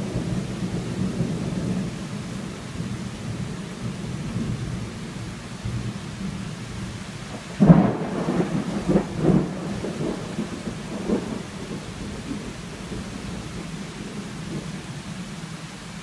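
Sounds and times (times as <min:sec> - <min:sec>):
heavy rain: 0:00.0 - 0:16.0
thunderclap rumbling: 0:07.3 - 0:15.2.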